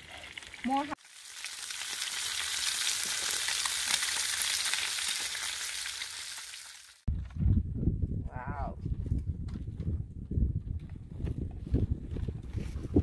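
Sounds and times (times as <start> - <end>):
fish sizzling in a frying pan: 0.0 - 7.1.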